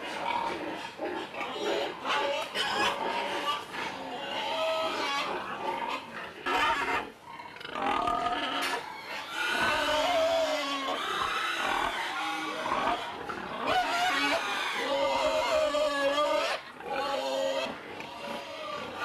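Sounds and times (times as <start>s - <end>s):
pigs squealing and grunting: 0.0s - 19.0s.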